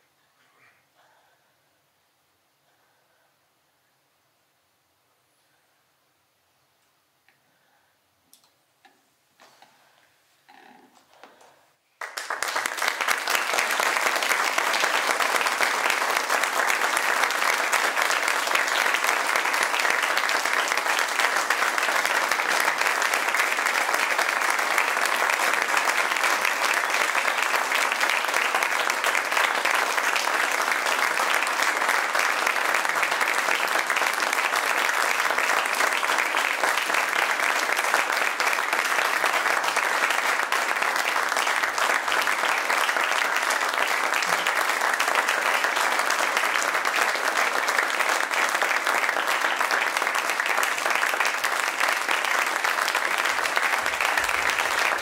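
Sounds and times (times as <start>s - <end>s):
audience applauding: 12.0s - 55.0s.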